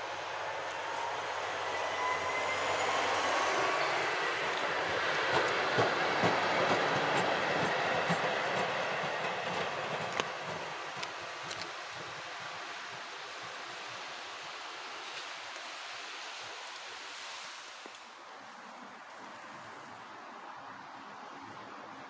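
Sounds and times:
diesel locomotive passing: 0.0 - 14.8
high wheel squeal: 0.8 - 5.4
wheels clicking over rail joints: 3.5 - 13.6.

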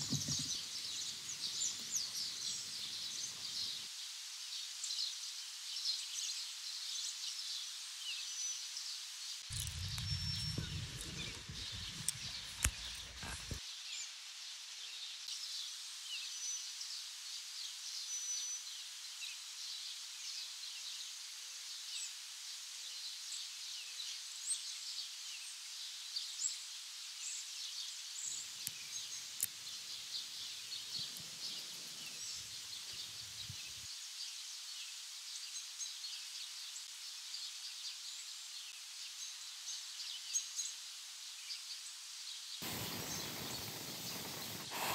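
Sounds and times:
birds chirping: 0.0 - 3.8, 9.5 - 13.6, 28.3 - 33.9, 42.6 - 44.9
low rumble: 9.5 - 13.6
small clicks: 9.5 - 13.6.

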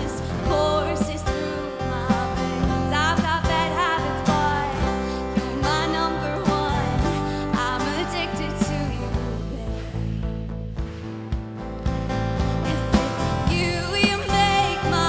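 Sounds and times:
girl singing into microphone: 0.0 - 10.2, 12.7 - 15.0
backing music with steady beat: 4.3 - 15.0.

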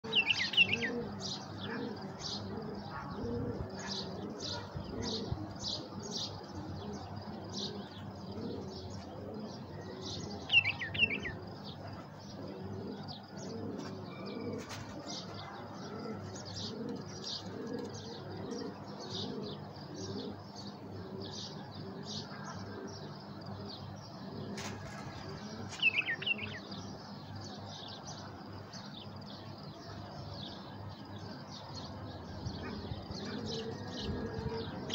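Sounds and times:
high bird chirping: 0.0 - 3.1, 9.6 - 11.7, 25.6 - 26.8
doves cooing: 0.0 - 34.9.

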